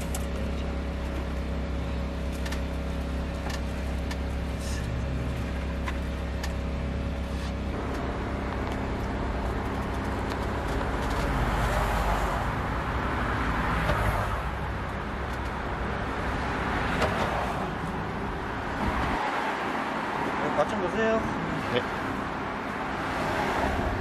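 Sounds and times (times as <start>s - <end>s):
passing cars: 0.0s - 24.0s.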